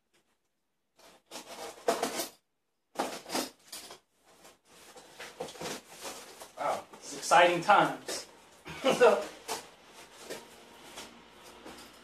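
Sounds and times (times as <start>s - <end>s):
plastic wrap rustling and tearing: 4.3s - 6.8s.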